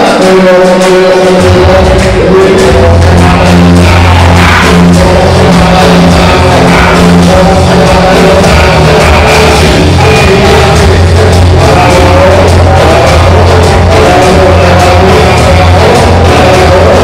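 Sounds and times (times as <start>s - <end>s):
loud music with heavy bass: 0.0s - 17.0s
person singing: 0.0s - 17.0s
steady drum beat: 0.0s - 17.0s.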